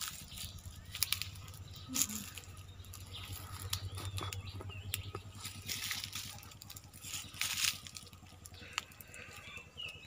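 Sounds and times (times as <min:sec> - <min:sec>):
footsteps crackling on dry ground: 0:00.0 - 0:10.0
low steady hum: 0:00.0 - 0:10.0
rustling of leaves and branches: 0:00.0 - 0:10.0.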